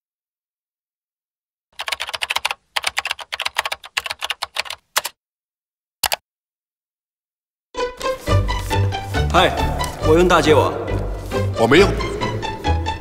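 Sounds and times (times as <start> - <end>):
computer keyboard typing: 1.8 - 5.2, 6.0 - 6.2.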